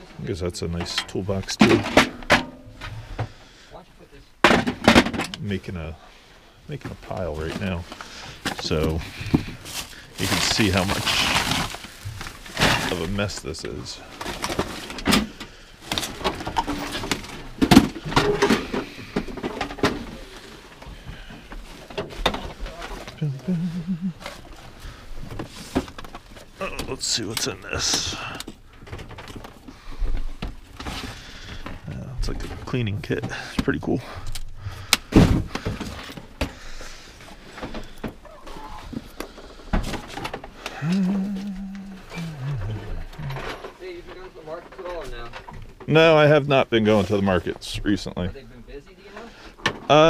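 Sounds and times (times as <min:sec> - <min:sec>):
tools and junk knocking and clanking: 0:00.7 - 0:03.4, 0:04.4 - 0:05.5, 0:12.1 - 0:23.2, 0:27.8 - 0:36.7, 0:42.6 - 0:46.0
tools knocking and clattering: 0:00.8 - 0:03.0, 0:04.4 - 0:05.4.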